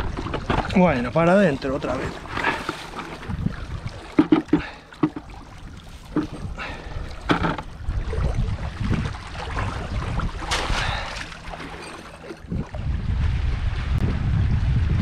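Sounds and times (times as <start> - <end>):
wind on microphone: 3.1 - 4.7, 5.6 - 11.1, 12.4 - 15.0
net splashing into water: 9.3 - 12.7.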